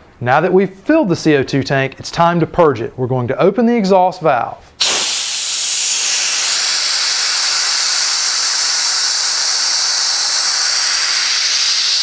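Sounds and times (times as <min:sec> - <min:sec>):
gas venting hiss: 0:04.7 - 0:12.0.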